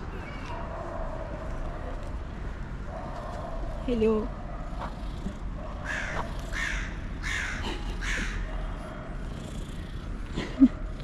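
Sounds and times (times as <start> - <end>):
crow cawing: 5.9 - 8.5.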